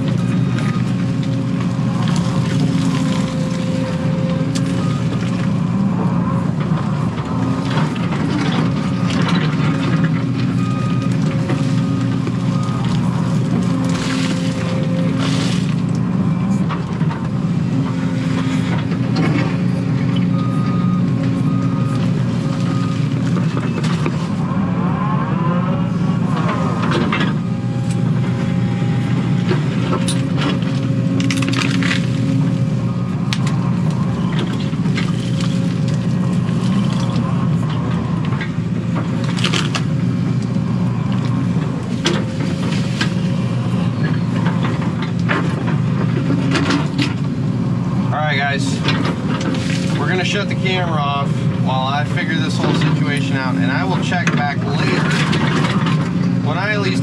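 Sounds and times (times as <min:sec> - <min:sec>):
excavator diesel engine running: 0:00.0 - 0:57.0
hydraulic whine: 0:00.0 - 0:57.0
bucket crunching and scraping dirt: 0:07.4 - 0:16.0, 0:29.3 - 0:37.8, 0:48.1 - 0:57.0.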